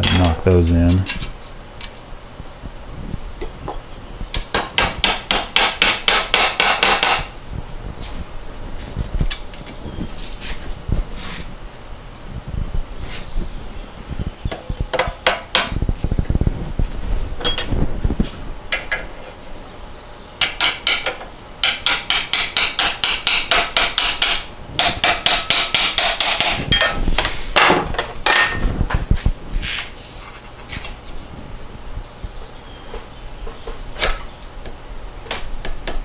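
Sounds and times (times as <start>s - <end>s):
hammer tapping metal: 20.4s - 27.0s.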